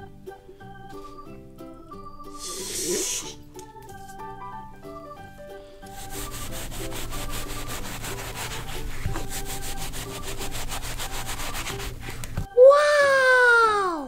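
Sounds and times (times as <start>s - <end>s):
plastic knife sawing cotton candy: 5.8s - 12.4s.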